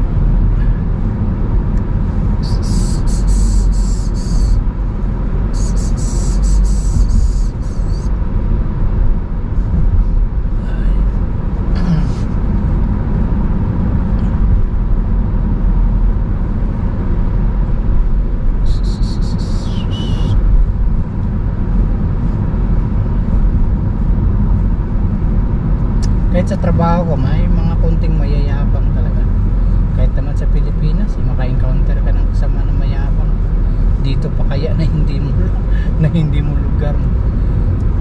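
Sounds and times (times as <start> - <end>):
car cabin road rumble: 0.0 - 38.0
short hissing swooshes: 5.5 - 8.1.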